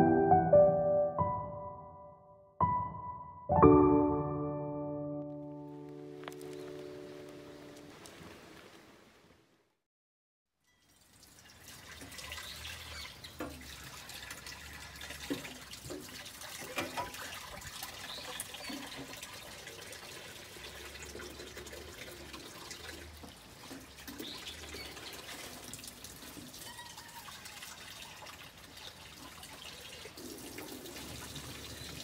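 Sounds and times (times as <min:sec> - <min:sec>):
tap water running into sink: 0:10.9 - 0:32.0.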